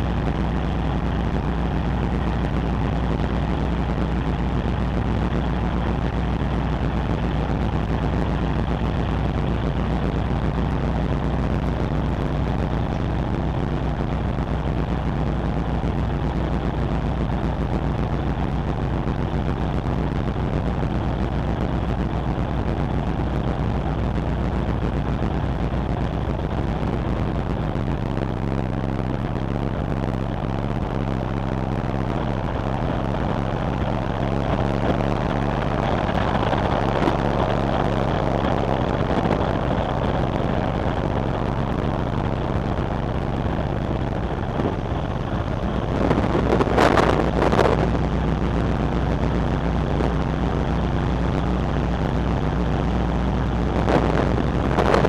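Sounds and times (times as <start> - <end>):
ship engine drone: 0.0 - 55.0
wind noise: 0.0 - 55.0
wind buffeting microphone: 31.8 - 48.2.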